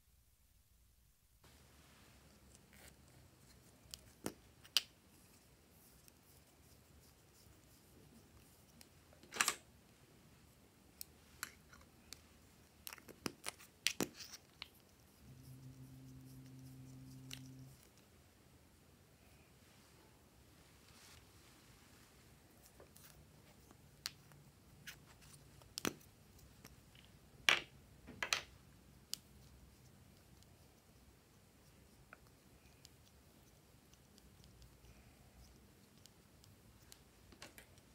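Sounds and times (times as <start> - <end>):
low steady hum: 0.0 - 37.9
plastic tubes and caps clicking: 25.7 - 28.5.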